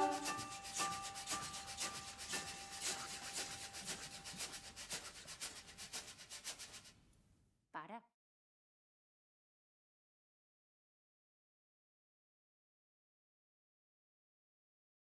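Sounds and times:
faint held note: 0.0 - 0.4
rhythmic shaker percussion: 0.0 - 7.0.

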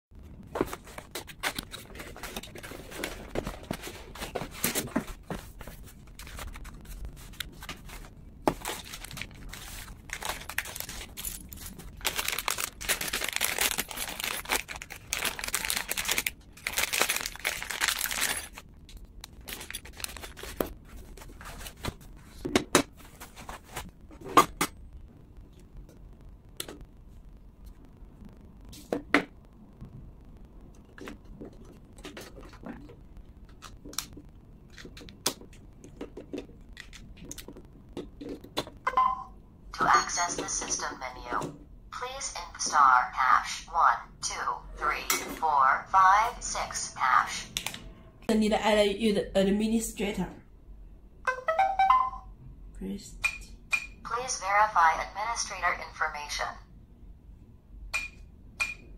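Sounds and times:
rustling cardboard and foam: 0.2 - 18.6, 19.4 - 24.4
plastic bag crinkling: 6.0 - 22.0.

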